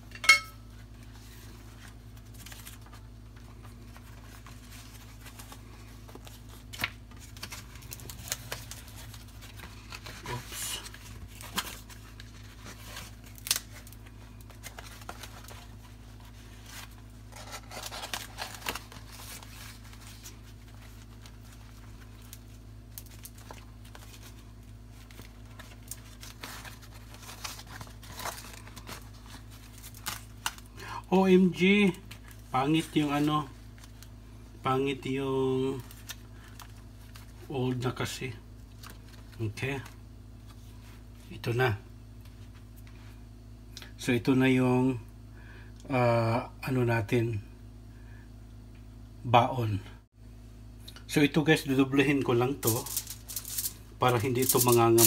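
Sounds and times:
steady low hum: 0.0s - 55.0s
leaf rustling and crinkling: 0.8s - 30.7s, 52.4s - 55.0s.

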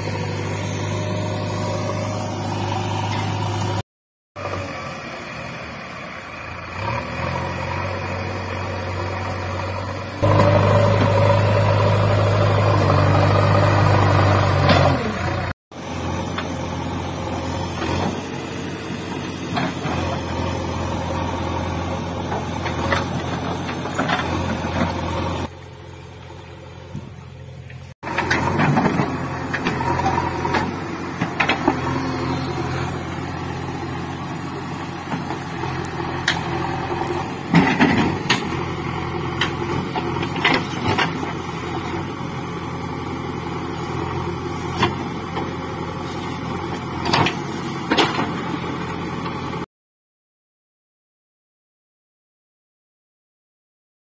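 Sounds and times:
diesel engine running under load: 0.0s - 3.8s, 4.4s - 49.6s.

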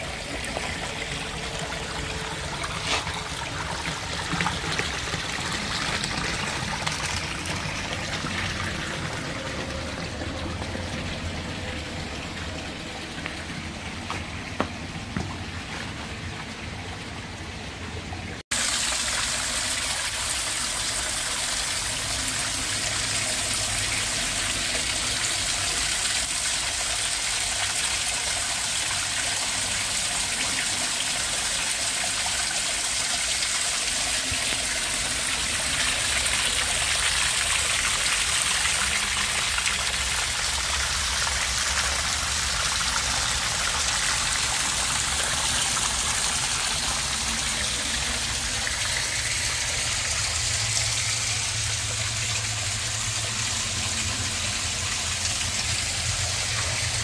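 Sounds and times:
waterfall splashing into pool: 18.5s - 57.0s.

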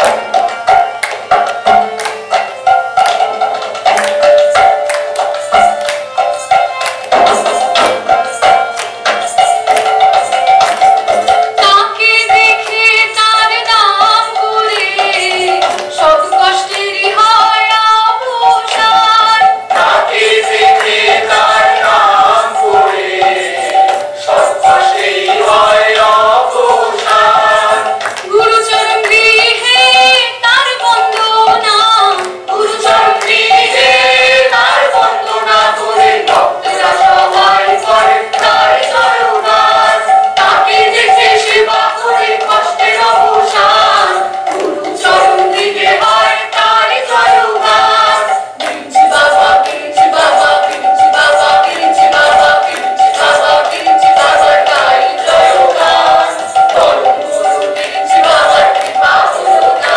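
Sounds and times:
group singing a devotional song: 0.0s - 59.9s
hand clapping: 0.0s - 59.9s.

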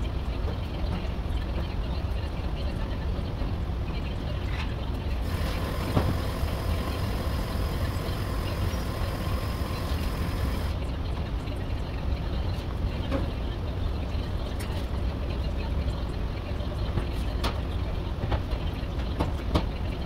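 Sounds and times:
shop machinery rumble: 5.0s - 10.8s.

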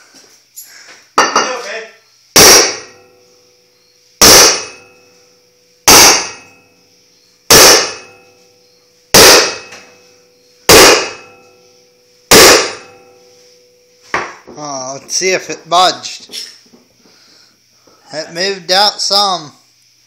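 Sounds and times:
sledgehammer clanging on steel: 10.7s - 11.5s.

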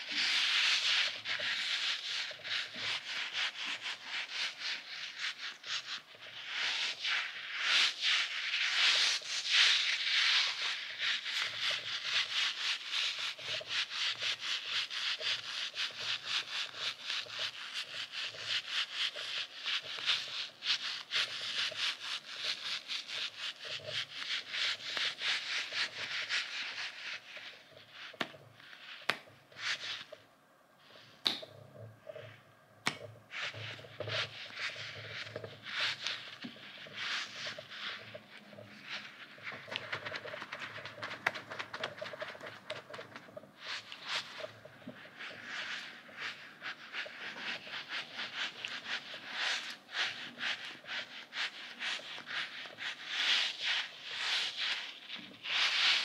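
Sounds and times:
fingers rubbing squishy toy: 31.2s - 53.6s.

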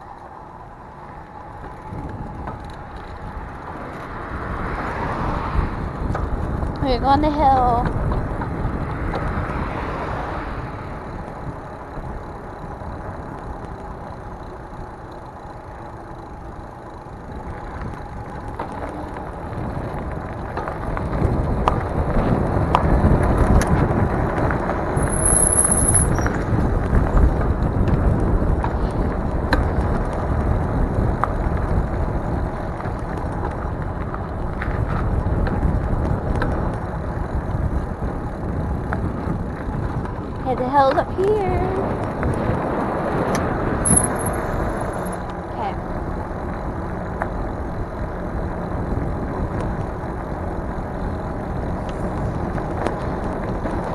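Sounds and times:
wind rush: 0.0s - 12.2s, 19.3s - 45.2s
bicycle tyres rolling: 0.0s - 53.9s.

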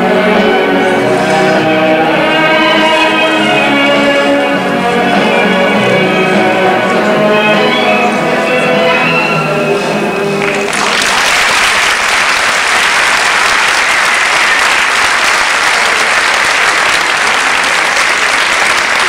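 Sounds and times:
audience applauding: 10.4s - 19.0s.

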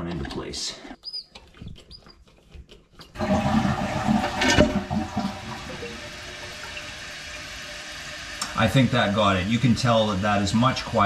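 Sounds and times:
valve clicks and squeaks: 0.9s - 2.2s
water rushing into toilet tank: 3.2s - 11.0s.

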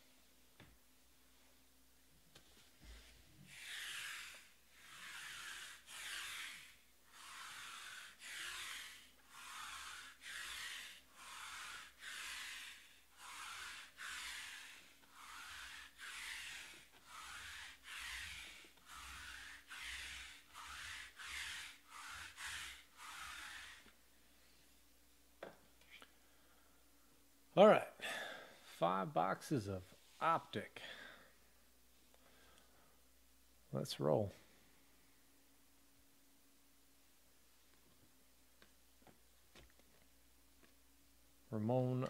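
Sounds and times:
lint roller rasping on felt: 2.3s - 24.0s.

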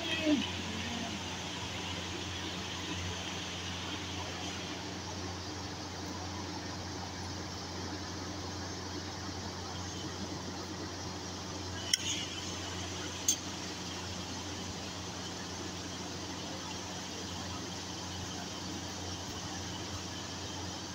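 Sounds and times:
steady hiss: 0.0s - 20.9s.

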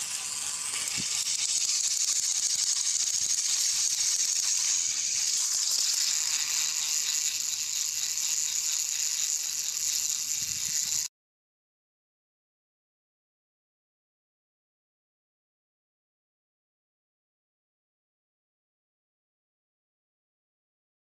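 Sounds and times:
toy train motor whirring: 0.0s - 11.1s.

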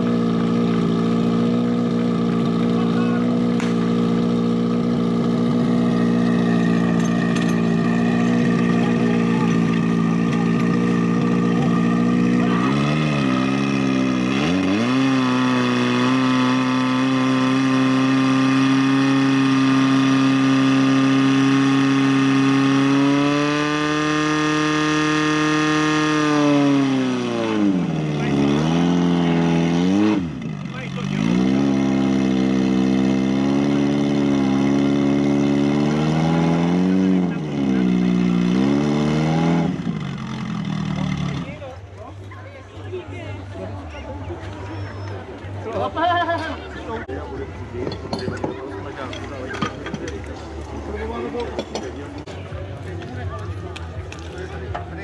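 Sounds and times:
pump engine running: 0.0s - 41.9s.

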